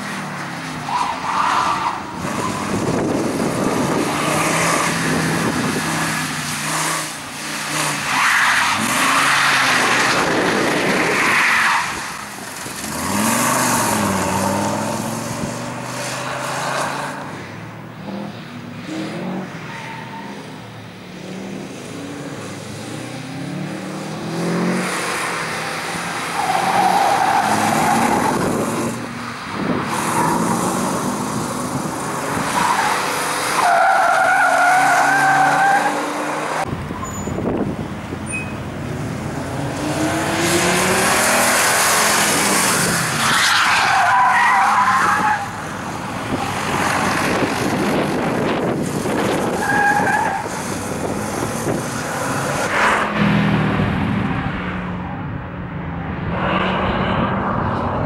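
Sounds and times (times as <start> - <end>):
car engine revving: 38.7 - 43.4.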